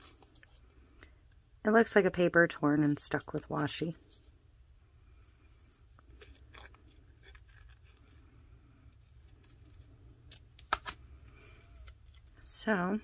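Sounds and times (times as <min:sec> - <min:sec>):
paper rustle: 0:05.4 - 0:08.3.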